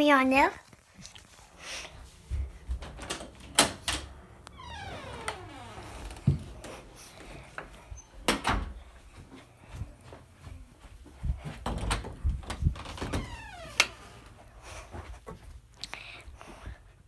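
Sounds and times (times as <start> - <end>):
squeaky creak sliding down: 4.5 - 6.2, 12.9 - 14.0.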